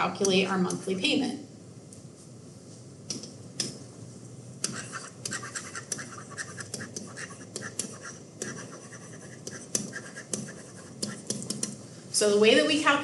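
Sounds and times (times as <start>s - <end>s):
stylus scratching on tablet screen: 4.6s - 11.8s.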